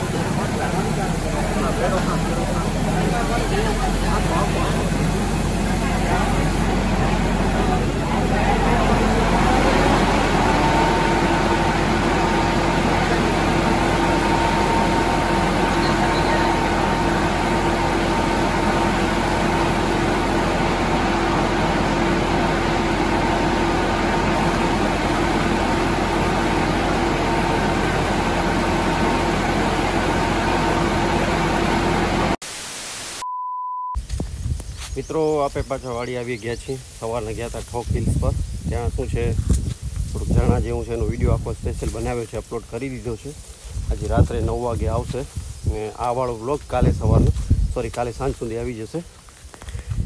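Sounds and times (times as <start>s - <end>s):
engine running: 0.0s - 32.4s
loud rushing noise: 0.0s - 33.2s
two-tone whine: 0.0s - 34.0s.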